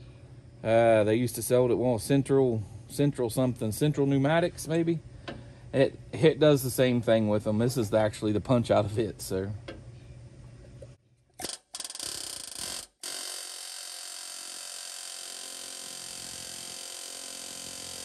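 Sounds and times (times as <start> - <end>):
pneumatic air hammer on steel: 11.4 - 18.0.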